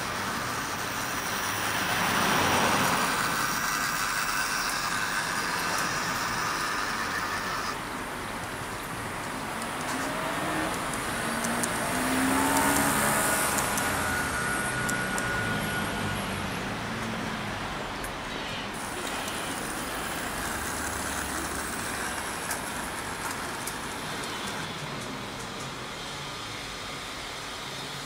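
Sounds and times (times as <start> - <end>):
small electric motors whining: 0.0 - 27.0
wheel ticks: 0.1 - 15.4, 18.8 - 25.8
steady hiss: 18.3 - 28.0.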